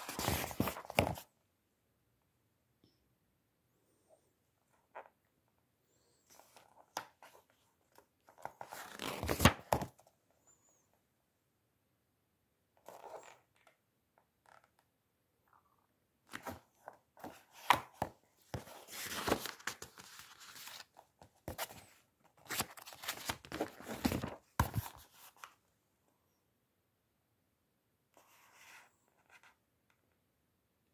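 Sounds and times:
book pages rustling: 0.0 - 1.3, 6.3 - 10.1, 16.3 - 25.6.

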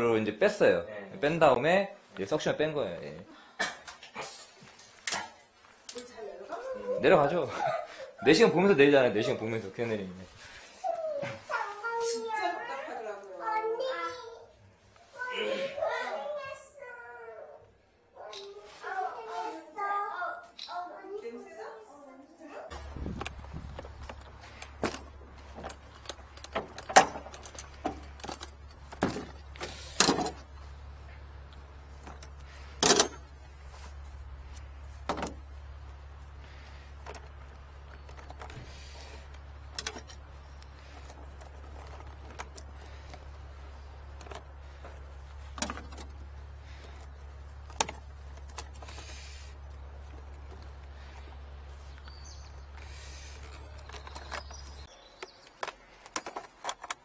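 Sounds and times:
steady low hum: 22.7 - 54.8
metal tools clanking: 22.7 - 57.0.

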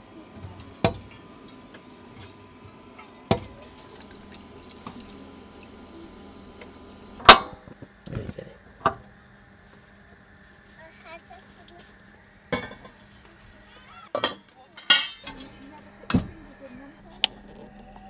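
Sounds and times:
water running into saucepan: 0.4 - 7.2.

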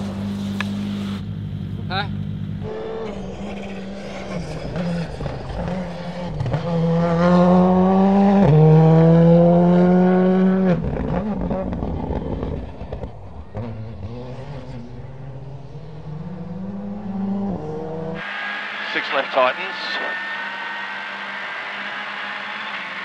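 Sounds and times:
rally car engine revving: 0.0 - 23.0.

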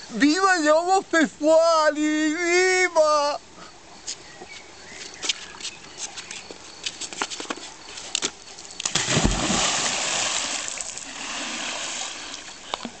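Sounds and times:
heavy splash into pool: 8.8 - 12.5
churning sloshing water: 8.9 - 13.0.

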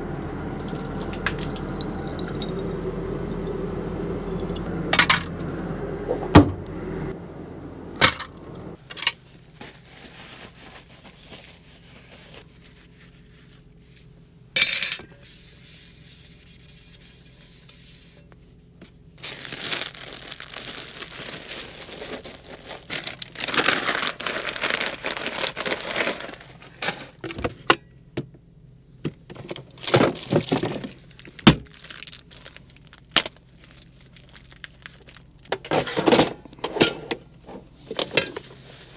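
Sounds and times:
plastic bag crinkling: 9.7 - 12.8, 19.2 - 27.2, 29.7 - 35.5.

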